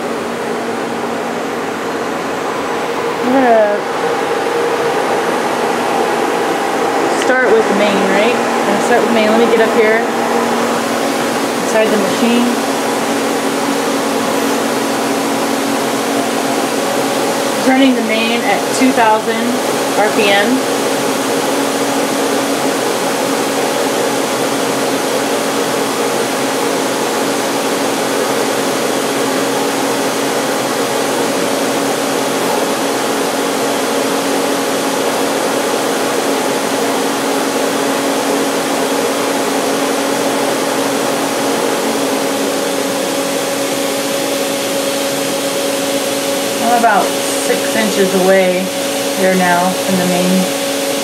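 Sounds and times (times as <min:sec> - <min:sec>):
low steady hum: 0:00.0 - 0:21.0
lathe spindle whirring: 0:00.0 - 0:51.0.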